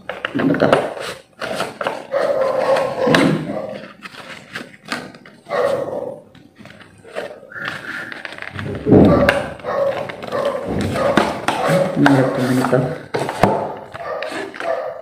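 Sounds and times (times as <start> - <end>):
voice-like sound: 7.2 - 9.7.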